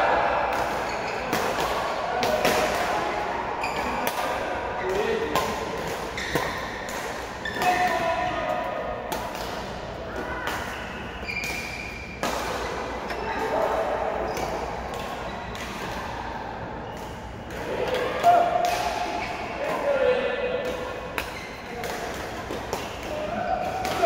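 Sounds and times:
shoes squeaking on floor: 3.6 - 4.0, 6.1 - 6.7, 10.7 - 12.2, 21.3 - 21.8.

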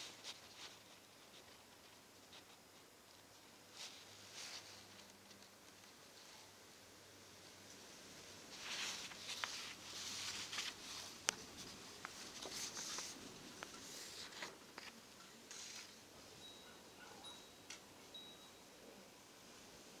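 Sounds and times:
paper rustling: 0.0 - 6.4, 8.5 - 16.0.

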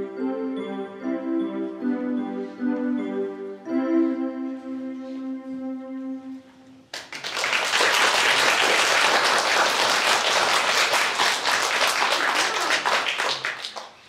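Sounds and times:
held electronic keyboard note: 0.0 - 6.8
audience applause: 6.9 - 14.0.

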